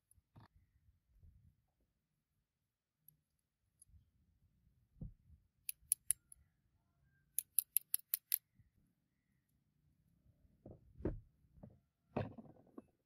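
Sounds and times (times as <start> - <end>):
revolver parts clicking: 5.7 - 6.2, 7.4 - 8.4.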